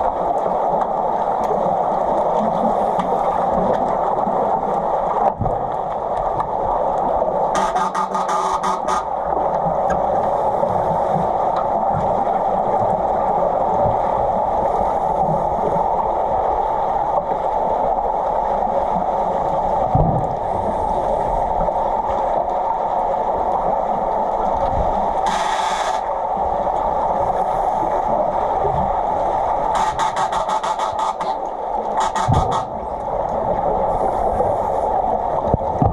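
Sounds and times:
muffled underwater water rush: 0.0s - 35.9s
bubbles hissing: 25.2s - 26.1s
underwater knock: 32.0s - 32.7s.

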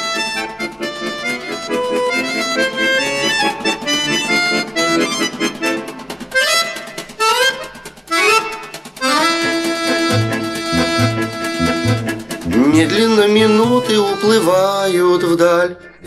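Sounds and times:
accordion music: 0.0s - 16.0s
low bass beat: 10.0s - 14.0s.

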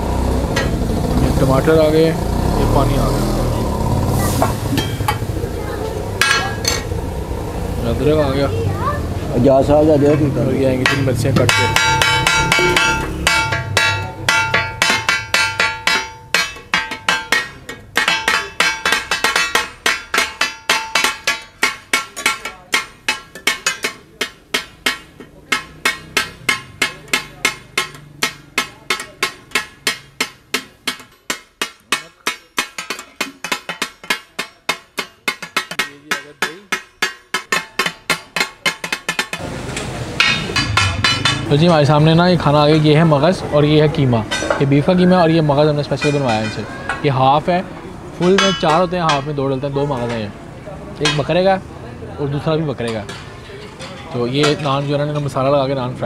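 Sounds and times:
metal spatulas striking a griddle: 4.4s - 5.3s, 6.2s - 6.9s, 10.8s - 43.2s, 44.3s - 45.2s, 45.8s - 47.2s, 48.2s - 50.3s, 51.0s - 51.4s, 52.8s - 55.7s.

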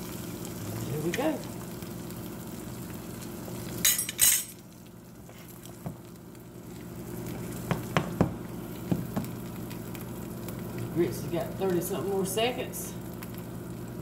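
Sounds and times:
egg sizzling in a pan: 0.0s - 14.0s
metal clinking on a pan: 3.8s - 4.6s.

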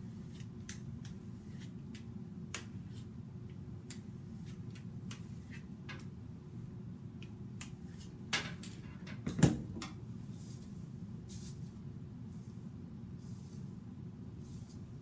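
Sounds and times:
comb swishing through hair: 0.0s - 3.2s, 10.2s - 15.0s
steady low hum: 0.0s - 15.0s.

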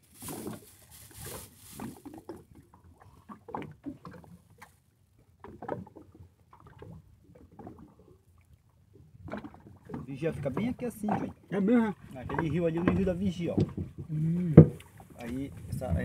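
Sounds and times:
water splashing against boat hull: 0.0s - 8.2s, 8.9s - 16.0s.

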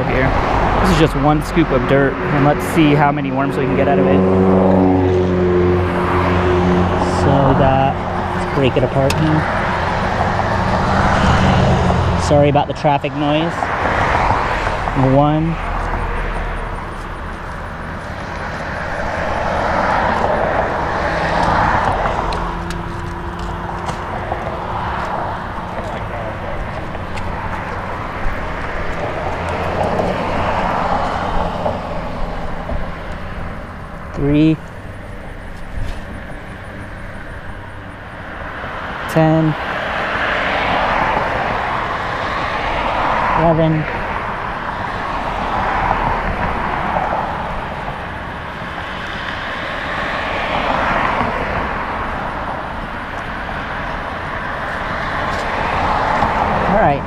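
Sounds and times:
passing vehicles rushing: 0.0s - 57.0s
low engine hum: 14.6s - 38.5s.

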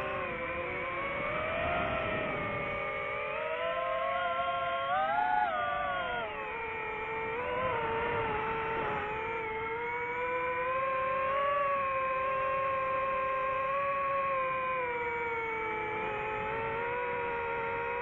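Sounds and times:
drone propellers whining: 0.0s - 18.0s.

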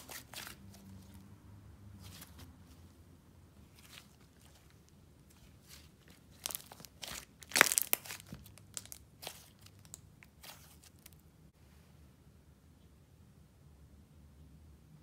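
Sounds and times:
slime squished in hands: 3.7s - 11.2s
slime crackling and popping: 5.3s - 11.2s.

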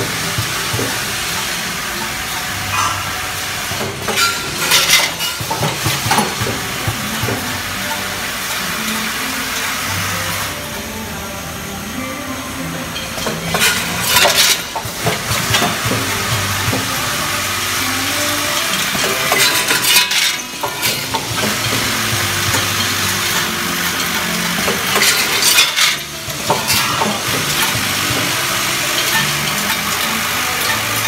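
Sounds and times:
machine humming: 0.0s - 31.0s
screws clattering in metal hopper: 3.7s - 9.1s, 12.9s - 31.0s.

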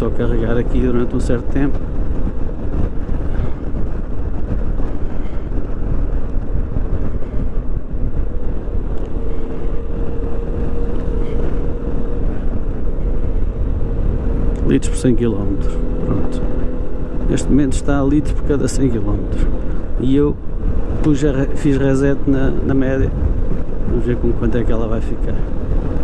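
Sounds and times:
wind rush on microphone: 0.0s - 26.0s
scooter engine running: 1.8s - 14.8s.

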